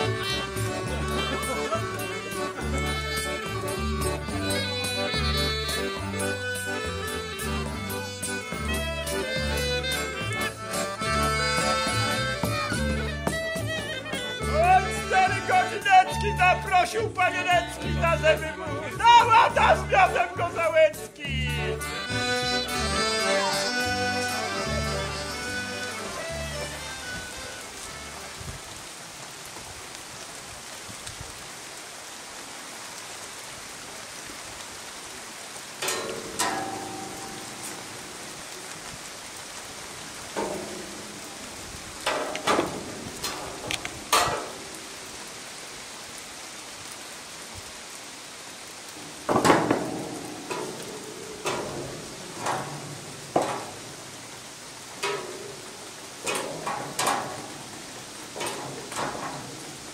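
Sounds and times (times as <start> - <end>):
rain-like hiss: 0.0 - 59.9
sharp knocks and clacks: 49.3 - 54.0.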